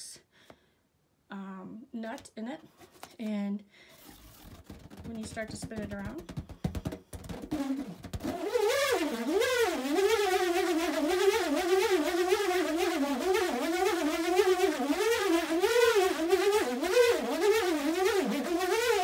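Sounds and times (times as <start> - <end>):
nut squealing inside balloon: 3.9 - 19.0.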